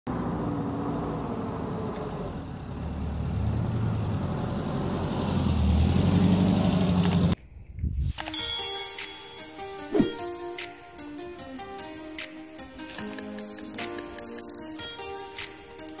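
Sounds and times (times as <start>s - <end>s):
vehicle engine driving past: 0.1s - 7.4s.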